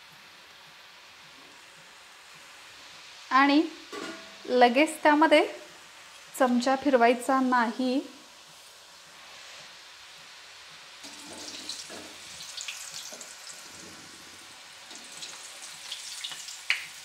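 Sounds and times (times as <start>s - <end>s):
dough sizzling in hot oil: 0.0s - 17.0s
spoon moving through oil: 11.0s - 17.0s.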